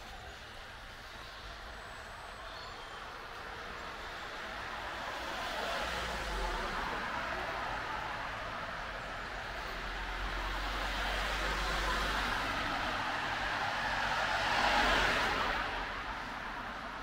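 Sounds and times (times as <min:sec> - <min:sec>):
car passing: 0:02.8 - 0:17.0.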